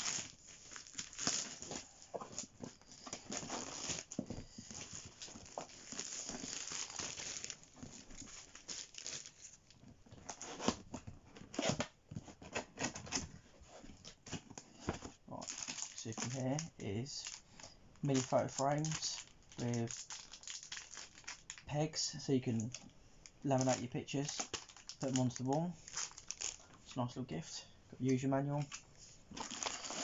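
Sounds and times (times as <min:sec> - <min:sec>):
packing tape tearing: 0:00.0 - 0:09.5, 0:29.4 - 0:30.0
plastic wrapping crinkling: 0:00.0 - 0:11.7, 0:15.3 - 0:21.7, 0:22.4 - 0:26.8, 0:28.6 - 0:30.0.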